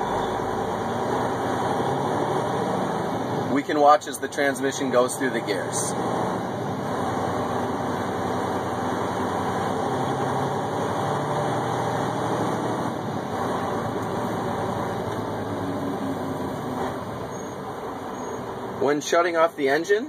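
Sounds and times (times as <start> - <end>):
diesel engine accelerating: 0.0 - 19.8.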